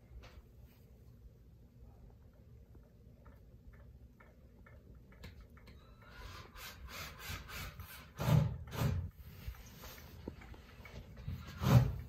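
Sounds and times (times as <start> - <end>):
ceiling fan rhythmic rubbing: 3.1 - 12.0.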